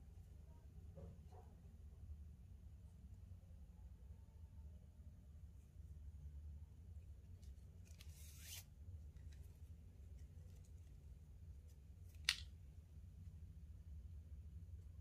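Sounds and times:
cord rustling through weave: 0:07.4 - 0:12.6
cord zipping tight: 0:07.9 - 0:08.6.

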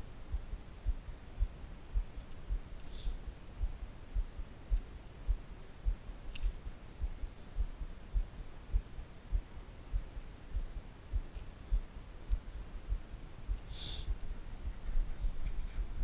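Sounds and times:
dull low thumps: 0:00.0 - 0:16.0
faint metallic click: 0:06.3 - 0:06.6.

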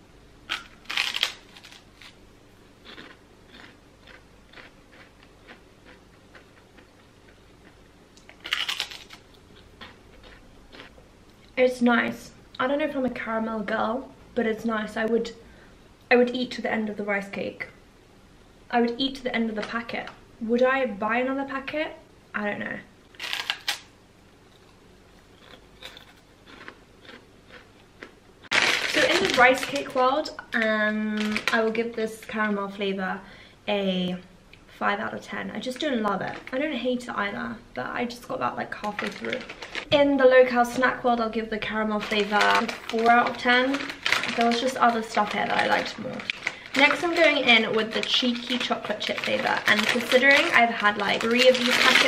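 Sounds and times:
rice cake bitten with crunch: 0:02.8 - 0:10.9, 0:24.6 - 0:28.9
faint chewing crunches: 0:02.8 - 0:11.6, 0:24.5 - 0:30.0.

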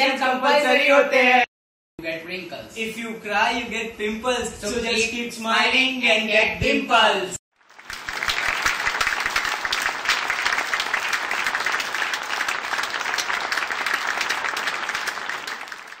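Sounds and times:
crowd applauding: 0:07.6 - 0:16.0.

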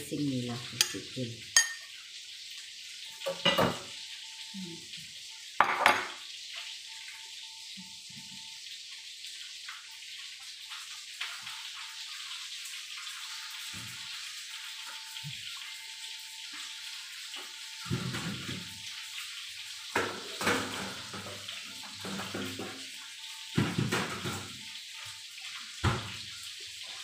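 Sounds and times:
ceramic bowl clinking on stone: 0:01.6 - 0:01.9.

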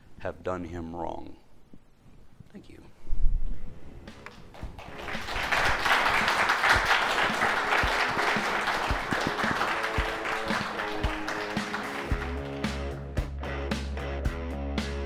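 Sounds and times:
audience applauding: 0:04.3 - 0:13.0
music with low thumping beat: 0:07.6 - 0:15.0.

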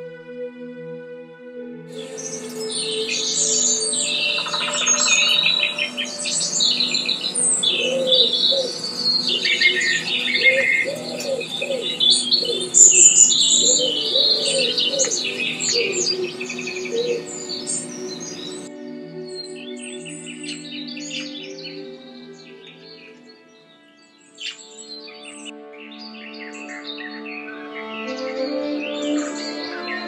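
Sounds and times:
ambient music drone: 0:00.0 - 0:30.0
songbirds chirping and trilling: 0:01.9 - 0:30.0
low cooing calls: 0:02.0 - 0:18.7.

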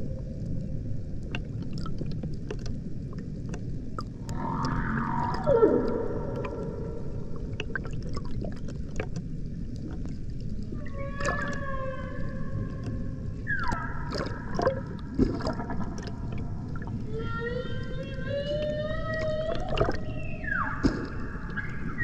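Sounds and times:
underwater clicks: 0:01.2 - 0:17.1, 0:18.3 - 0:22.0
whale moaning calls: 0:04.2 - 0:07.6, 0:10.7 - 0:14.9, 0:15.5 - 0:22.0.

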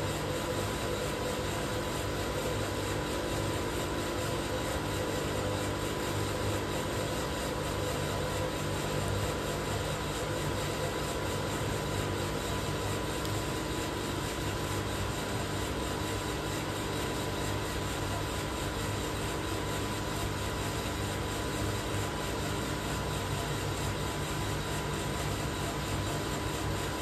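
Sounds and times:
coffee roaster machine hum: 0:00.0 - 0:27.0.

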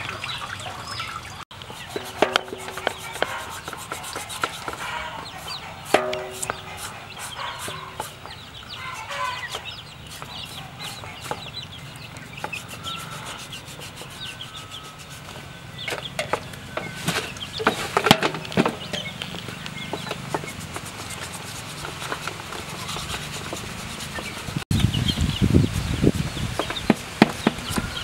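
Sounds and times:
chickens clucking: 0:00.0 - 0:25.0
knife scraping hide: 0:01.6 - 0:11.6, 0:12.3 - 0:18.6, 0:19.9 - 0:24.6
handling noise: 0:01.6 - 0:24.6.

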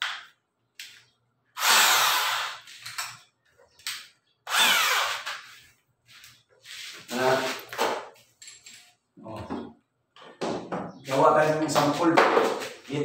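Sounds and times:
electric drill spinning: 0:01.6 - 0:02.9, 0:04.5 - 0:05.5.

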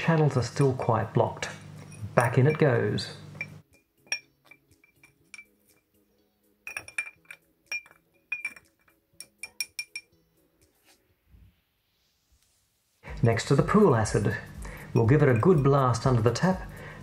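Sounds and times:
ceramic chunks clinking in container: 0:06.7 - 0:10.1.

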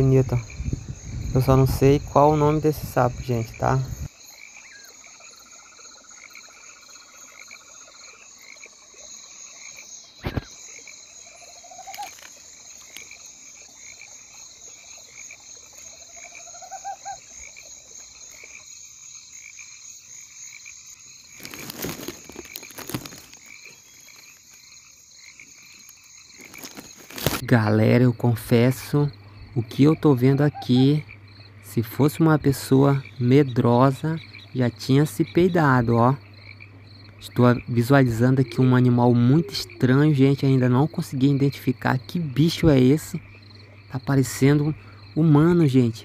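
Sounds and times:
frog calls: 0:00.0 - 0:46.0
insects trilling: 0:00.0 - 0:46.0
rustling: 0:21.3 - 0:24.7, 0:25.8 - 0:27.4.

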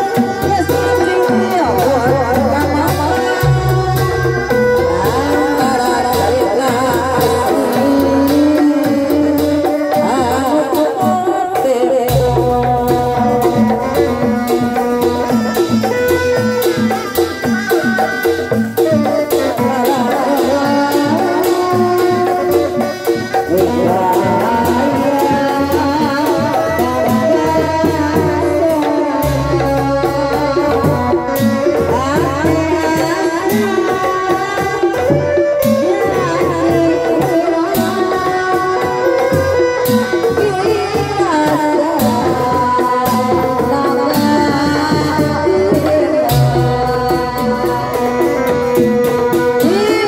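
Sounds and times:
hand drums: 0:00.0 - 0:50.0.

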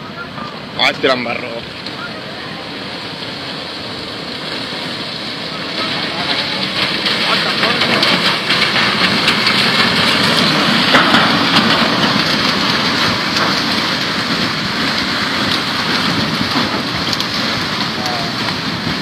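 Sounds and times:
muddy water rushing: 0:00.0 - 0:19.0
debris knocking and cracking: 0:05.8 - 0:19.0.

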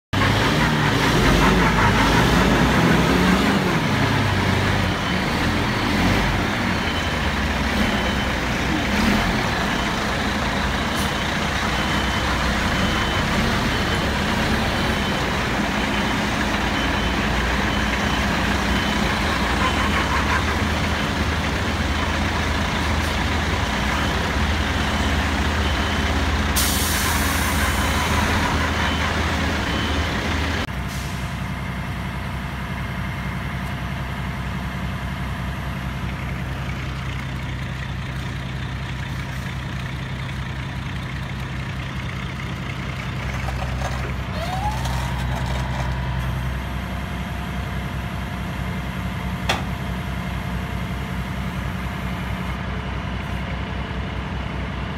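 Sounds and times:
heavy diesel truck engine: 0:00.1 - 0:54.9.

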